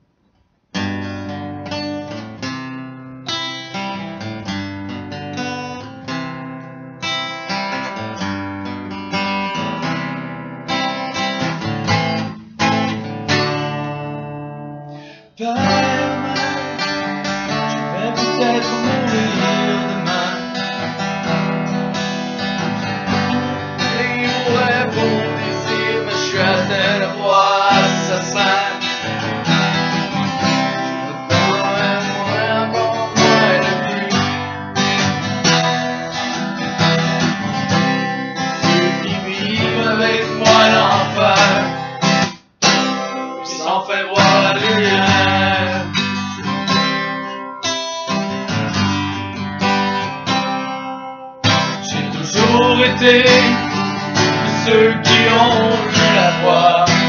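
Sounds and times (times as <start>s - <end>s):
acoustic guitar playing: 0.7s - 57.0s
men singing: 15.4s - 20.8s, 22.8s - 35.1s, 38.6s - 42.0s, 43.2s - 46.2s, 51.8s - 57.0s.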